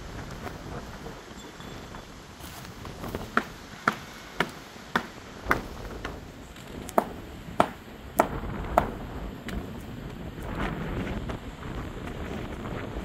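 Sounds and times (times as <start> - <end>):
sharp rhythmic knocks: 3.3 - 6.2, 7.0 - 9.0.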